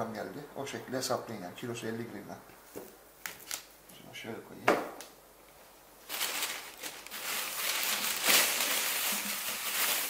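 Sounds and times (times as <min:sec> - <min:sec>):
plastic bag rustling: 0:06.0 - 0:10.0.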